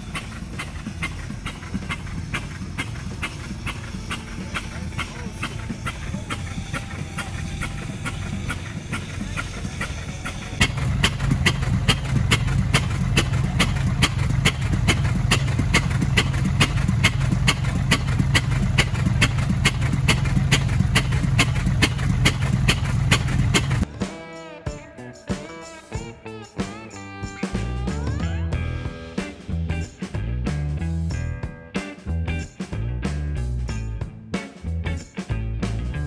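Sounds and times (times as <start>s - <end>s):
pump engine exhaust pops: 0.0s - 23.9s
hose streams rushing: 0.0s - 24.2s.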